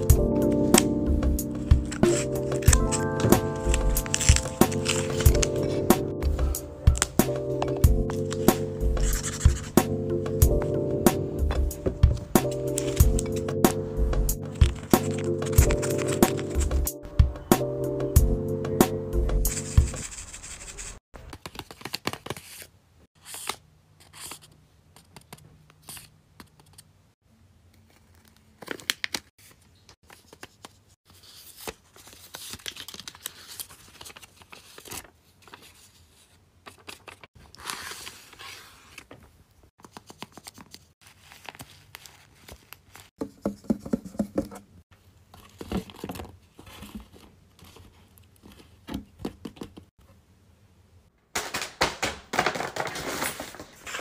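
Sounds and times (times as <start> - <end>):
paper rustling and crinkling: 1.5 - 9.8, 12.0 - 13.6, 14.4 - 16.9, 19.5 - 22.7, 27.8 - 44.5, 45.3 - 48.9, 51.4 - 54.0.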